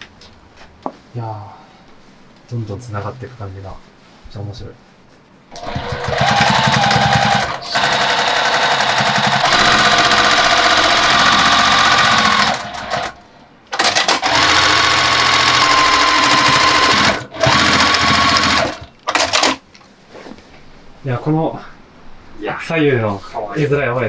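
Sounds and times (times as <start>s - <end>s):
sewing machine stitching: 5.5s - 13.2s, 13.8s - 19.6s.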